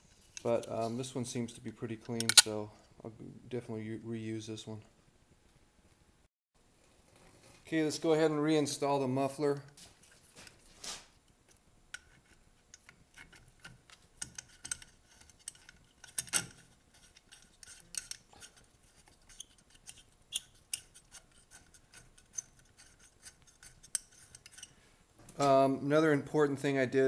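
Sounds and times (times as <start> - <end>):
light metallic clicks and taps: 2.1 - 2.5.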